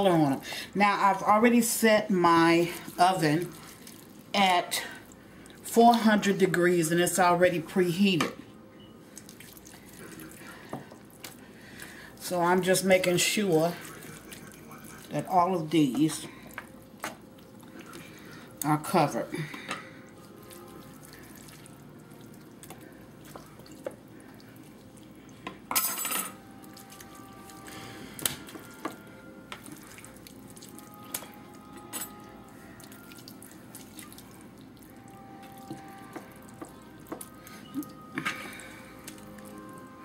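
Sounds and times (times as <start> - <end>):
wet squishing of raw meat: 2.6 - 5.7, 9.1 - 12.0, 13.3 - 15.3, 20.0 - 25.4, 26.6 - 31.8, 32.4 - 39.8.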